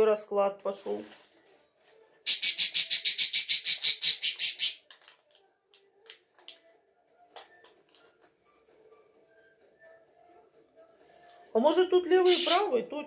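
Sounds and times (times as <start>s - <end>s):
bird chirping rapidly: 2.3s - 4.8s, 12.2s - 12.7s.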